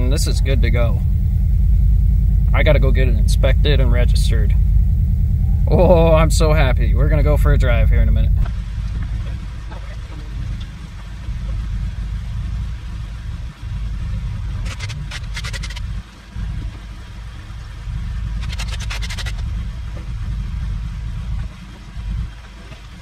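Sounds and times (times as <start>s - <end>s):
car engine deep uneven rumble: 0.0s - 23.0s
rapid clicking: 14.6s - 15.9s, 18.4s - 19.5s.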